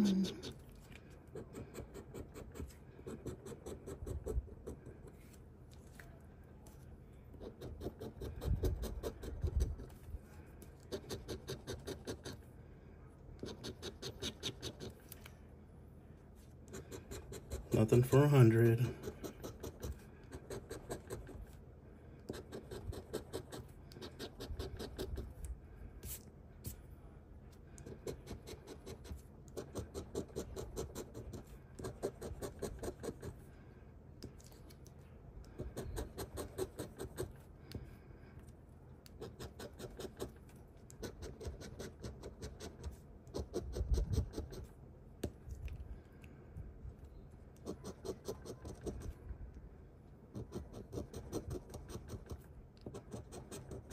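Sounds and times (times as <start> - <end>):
coin scratching lottery ticket: 13.4 - 15.0.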